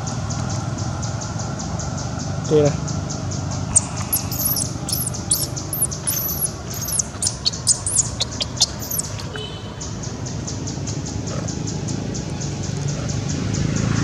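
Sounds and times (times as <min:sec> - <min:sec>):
steady low hum: 0:03.7 - 0:09.4
high-pitched animal squeaks: 0:03.7 - 0:09.6.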